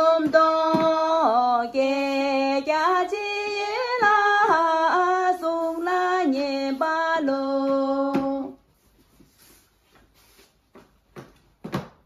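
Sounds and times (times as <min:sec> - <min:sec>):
woman singing a melody: 0:00.0 - 0:08.6.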